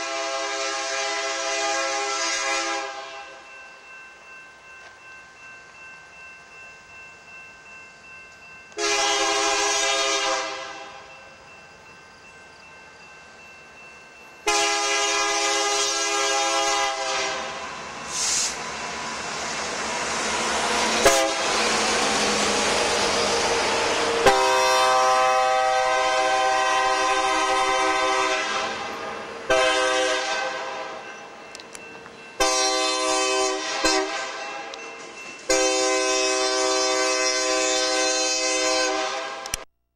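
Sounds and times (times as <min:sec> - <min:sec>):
locomotive air horn blasts: 0:00.0 - 0:03.4, 0:08.8 - 0:11.0, 0:14.4 - 0:18.5, 0:21.0 - 0:21.7, 0:23.6 - 0:31.0, 0:32.4 - 0:34.4, 0:35.5 - 0:39.6
diesel locomotive engine: 0:00.0 - 0:39.7
train wheels on rail: 0:00.0 - 0:39.7.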